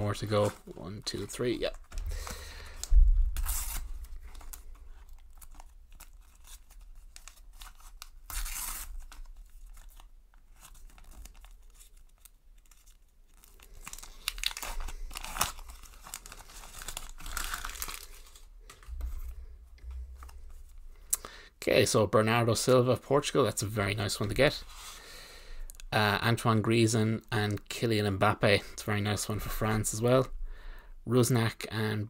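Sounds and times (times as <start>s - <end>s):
foil packet tearing and crinkling: 1.7s - 18.9s.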